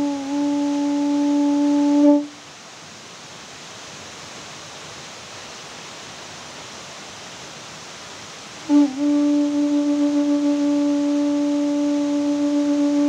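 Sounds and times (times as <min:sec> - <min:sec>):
blown horn note: 0:00.0 - 0:02.4, 0:08.6 - 0:13.0
steady hiss: 0:00.0 - 0:13.0.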